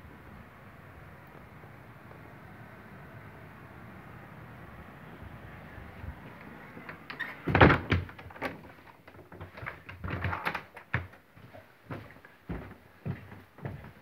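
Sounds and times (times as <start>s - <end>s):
door shutting with thud and rattle: 6.8s - 11.2s
knocks and clicks of handling: 6.9s - 11.2s.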